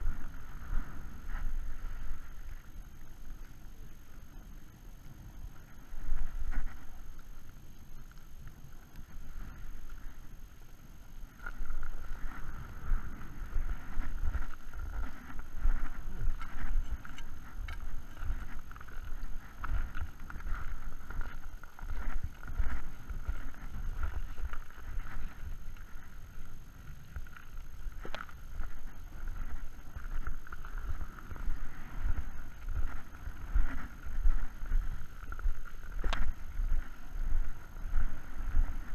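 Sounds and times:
wind rumbling on microphone: 0:00.0 - 0:38.9
footsteps crunching on snow: 0:11.2 - 0:38.9.

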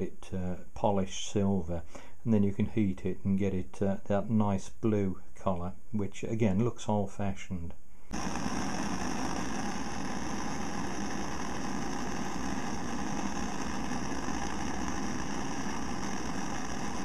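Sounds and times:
blowtorch burning: 0:08.1 - 0:17.0.

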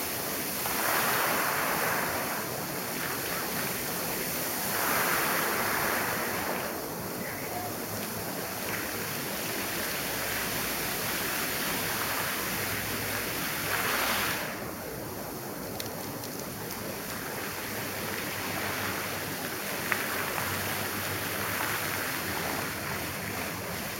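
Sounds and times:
fountain water splashing: 0:00.0 - 0:23.9.

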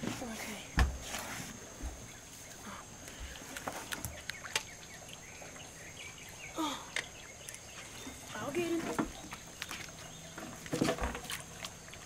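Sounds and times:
faint bird calls: 0:01.9 - 0:10.5.

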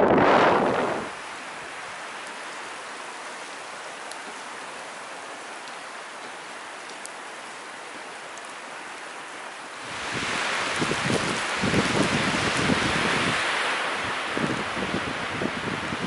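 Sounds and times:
faint ticks: 0:04.0 - 0:04.7, 0:05.6 - 0:07.2.

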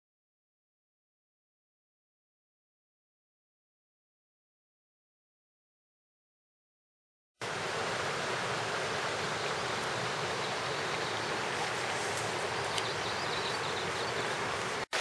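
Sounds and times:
mountain stream rushing: 0:07.4 - 0:15.0.

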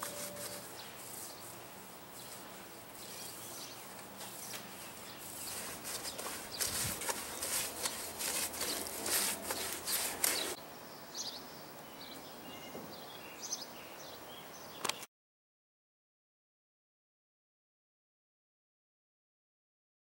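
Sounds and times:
paintbrush scrubbing rough wall: 0:00.0 - 0:10.6
faint outdoor air: 0:00.0 - 0:15.1.

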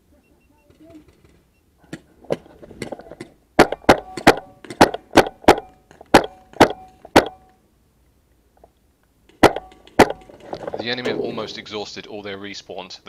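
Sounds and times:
paintball gun shots: 0:01.9 - 0:07.5, 0:09.3 - 0:10.5.

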